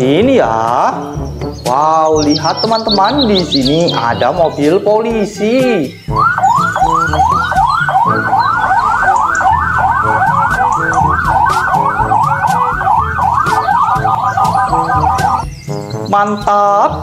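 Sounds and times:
police siren wailing: 6.1 - 15.5.

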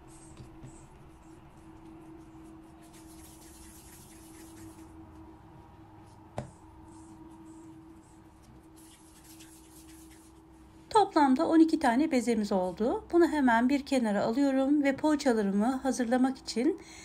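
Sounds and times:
hands rolling dough on mat: 0.0 - 5.3, 6.0 - 10.5.

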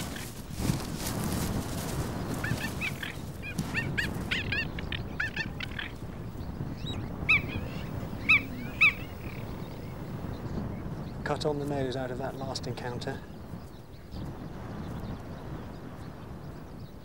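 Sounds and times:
cheetahs chirping: 2.1 - 13.0.

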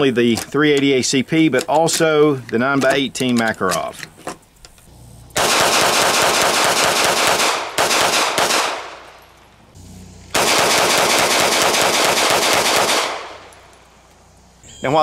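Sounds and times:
pistol shots: 5.3 - 9.3, 10.3 - 13.9.

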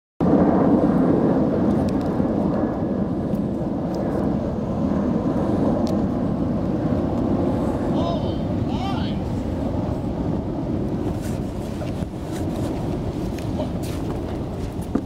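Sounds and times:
outdoor background rumble: 0.2 - 15.0.

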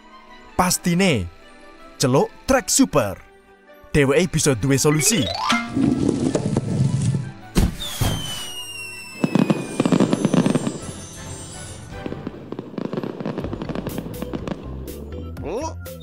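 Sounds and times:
background music: 0.0 - 16.0
crackling sparkles: 5.7 - 15.0
firework bang: 7.5 - 14.8
falling whistle: 7.6 - 11.7.

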